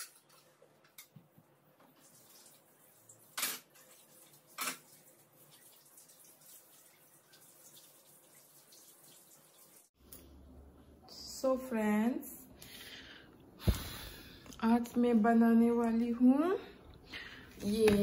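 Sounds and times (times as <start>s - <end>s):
water running in sink: 1.8s - 10.0s.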